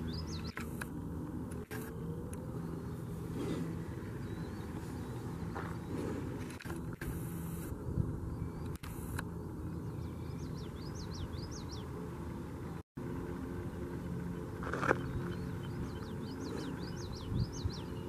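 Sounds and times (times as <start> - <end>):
low outdoor rumble: 0.0 - 18.0
songbird whistling song: 14.9 - 18.0.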